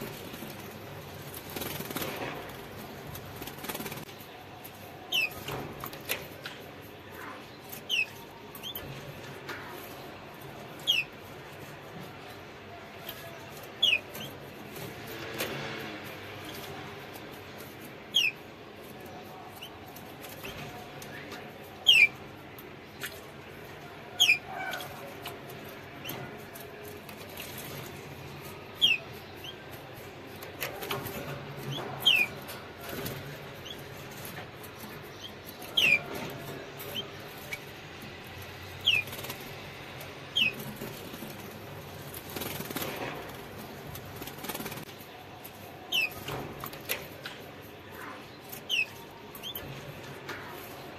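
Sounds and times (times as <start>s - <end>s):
birds fluttering wings in water: 0.0s - 4.2s, 35.6s - 45.0s
canary chirps: 0.0s - 50.9s.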